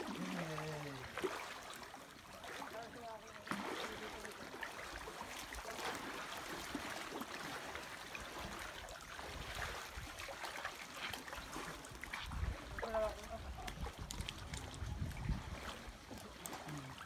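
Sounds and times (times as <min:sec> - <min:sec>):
water splashing around wading feet: 0:00.0 - 0:17.0.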